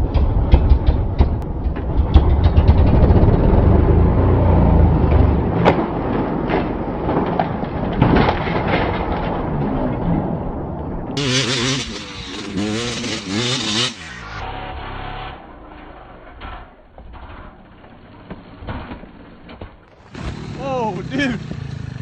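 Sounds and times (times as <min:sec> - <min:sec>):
sharp knocks of bike landing: 0:00.0 - 0:03.1
motorcycle engine revving: 0:00.0 - 0:09.7, 0:11.2 - 0:17.7, 0:20.0 - 0:22.0.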